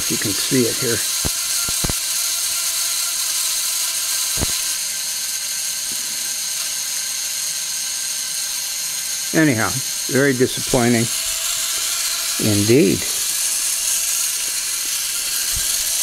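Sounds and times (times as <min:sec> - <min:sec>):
sharp clicks: 0:00.0 - 0:02.1, 0:04.3 - 0:04.8
ignition coil buzzing: 0:00.0 - 0:16.0
spark gap crackling: 0:00.0 - 0:16.0.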